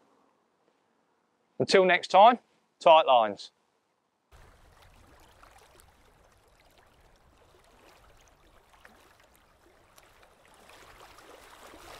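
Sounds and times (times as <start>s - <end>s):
water lapping: 4.3s - 11.9s.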